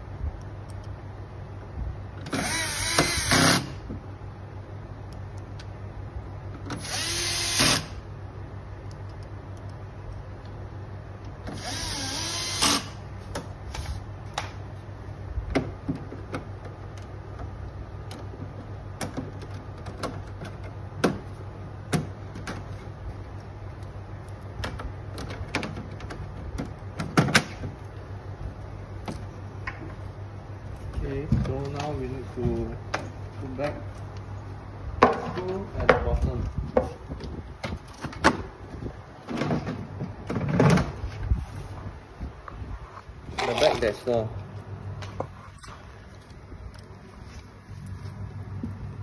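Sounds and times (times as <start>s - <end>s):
steady low hum: 0.0s - 49.0s
cordless drill motor whine: 2.3s - 3.8s, 6.8s - 8.0s, 11.5s - 13.0s.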